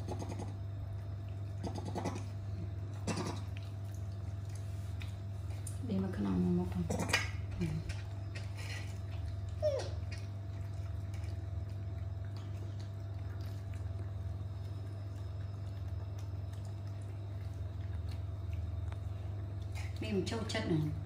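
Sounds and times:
monkeys chewing and smacking: 0.0 - 20.6
steady low hum: 0.0 - 21.0.

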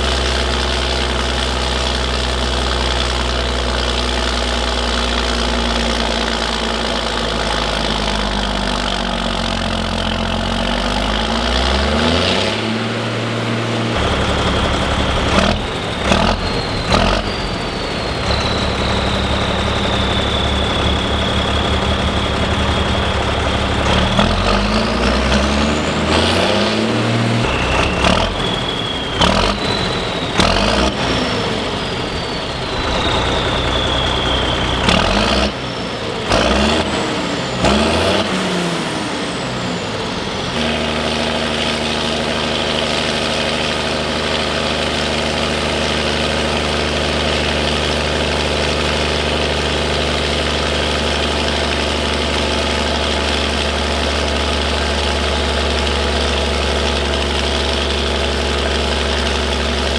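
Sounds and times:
diesel tractor engine revving: 0.0 - 59.9
turbo whistle: 14.0 - 36.8.

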